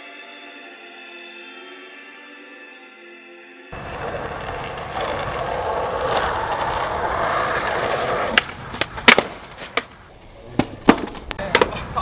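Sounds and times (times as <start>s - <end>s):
skateboard wheels rolling on asphalt: 3.7s - 10.1s
skateboard clacking on pavement: 3.8s - 10.0s.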